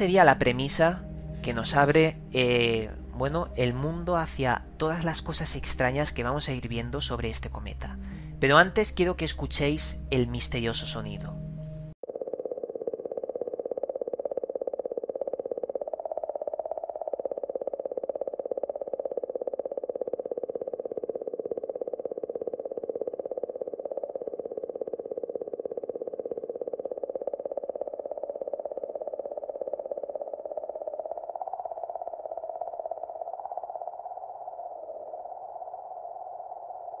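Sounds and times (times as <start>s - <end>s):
buzzing warble with flutter: 0.0s - 37.0s.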